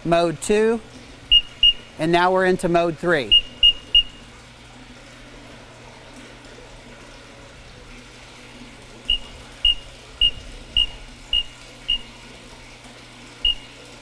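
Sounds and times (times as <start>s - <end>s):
short high beeps: 1.3s - 2.0s, 3.3s - 4.2s, 9.1s - 12.1s, 13.5s - 13.7s.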